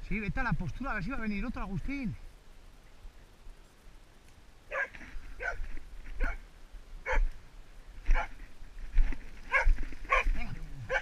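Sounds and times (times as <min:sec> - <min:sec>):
dog barking: 0:04.7 - 0:05.6, 0:06.2 - 0:06.4, 0:07.0 - 0:07.3, 0:08.1 - 0:08.4, 0:09.5 - 0:11.0.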